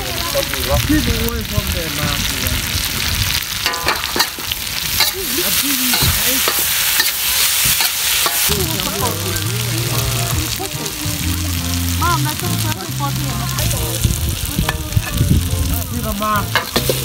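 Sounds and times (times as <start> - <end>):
food sizzling in a wok: 0.0 - 17.0
metal spatula scraping wok: 3.6 - 9.3, 16.5 - 17.0.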